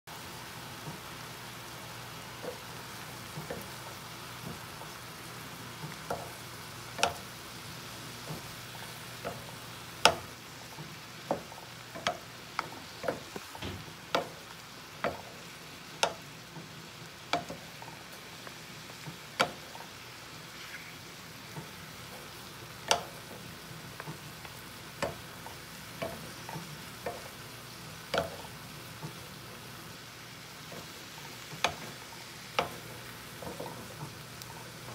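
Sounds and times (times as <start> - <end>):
food sizzling in a pan: 0.1 - 34.9
wooden spoon knocking pan: 9.3 - 10.3.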